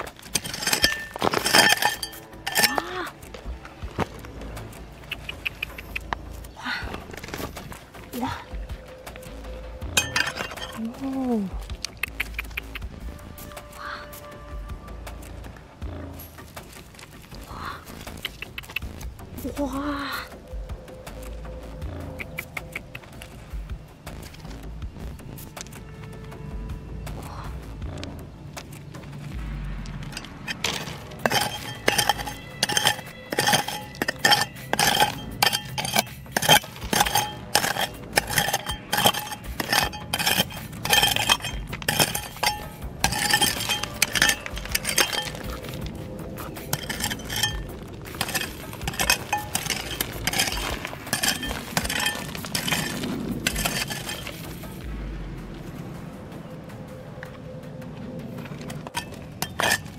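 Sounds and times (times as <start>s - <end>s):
hard objects clinking: 0.0s - 4.0s, 9.8s - 10.9s, 30.0s - 54.7s, 58.7s - 59.9s.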